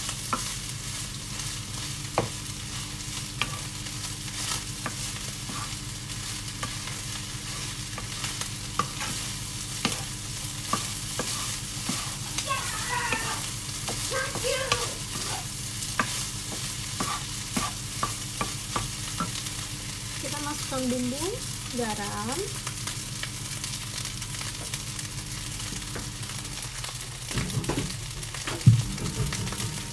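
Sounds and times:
rice sizzling in wok: 0.0 - 29.9
spatula scraping pan: 3.4 - 5.8, 6.6 - 19.4.

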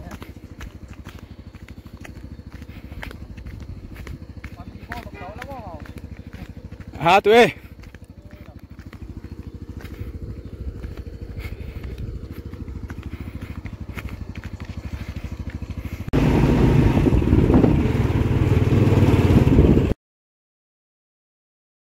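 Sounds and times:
moving motorcycle engine: 0.0 - 20.0
small motorcycle engines running: 0.0 - 20.0
wind rushing: 16.2 - 20.0.

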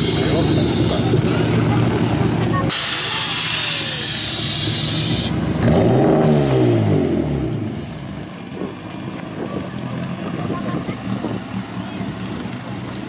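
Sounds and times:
car engine revving: 0.0 - 13.0
loud steady hiss: 2.7 - 5.4.

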